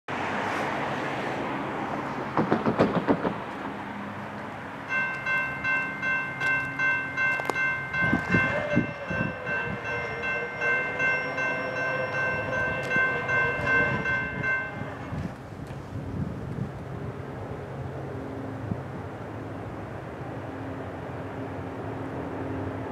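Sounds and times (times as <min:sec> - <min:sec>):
crossing warning bell ringing: 0:04.8 - 0:15.4
train horn: 0:08.0 - 0:15.4.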